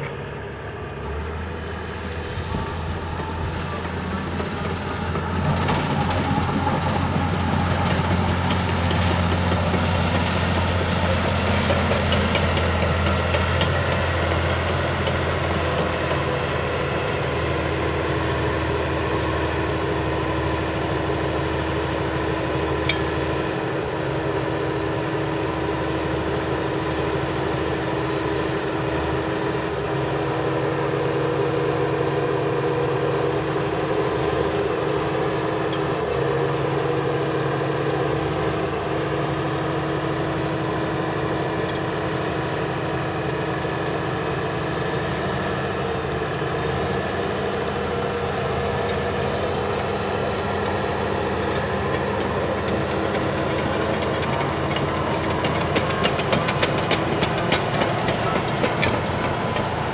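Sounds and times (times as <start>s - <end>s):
dozer diesel engine running: 0.0s - 59.9s
steel tracks clattering: 50.2s - 59.9s.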